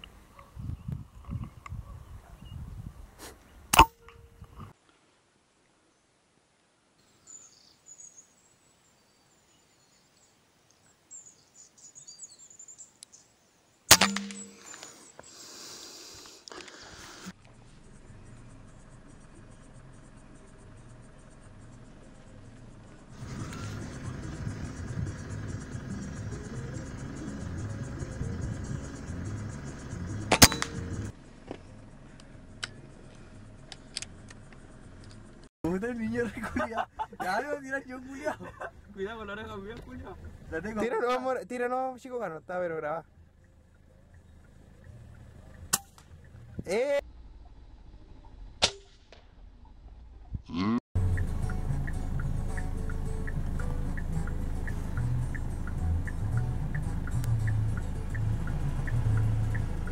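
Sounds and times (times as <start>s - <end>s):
small birds chirping: 7.1s - 31.1s, 42.9s - 46.8s
rifle shot: 13.9s - 14.6s, 30.3s - 30.8s
rustling hiss: 14.4s - 18.0s
vehicle engine idling: 17.3s - 40.9s, 42.3s - 48.3s, 51.0s - 59.9s.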